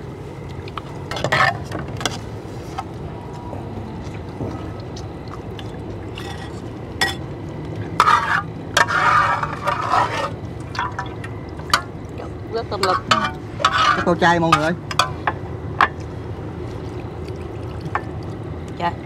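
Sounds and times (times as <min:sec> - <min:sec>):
steady low hum: 0:00.0 - 0:19.0
dishes clinking: 0:06.2 - 0:07.3
liquid pouring: 0:16.0 - 0:18.7.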